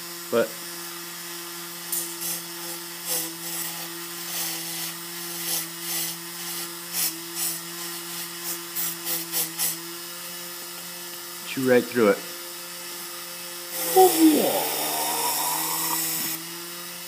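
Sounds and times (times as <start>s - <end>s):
bit cutting foam: 13.7s - 16.5s.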